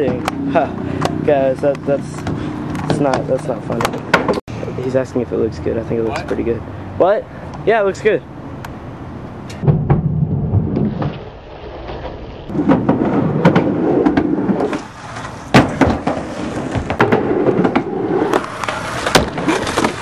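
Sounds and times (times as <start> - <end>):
skateboard wheels rumbling on wood: 12.5 - 20.0.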